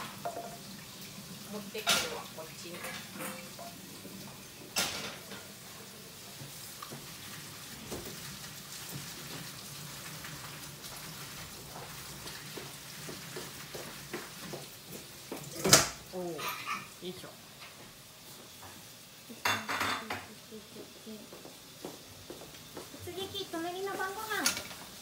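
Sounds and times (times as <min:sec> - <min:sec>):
tap water running into sink: 0:00.0 - 0:16.1.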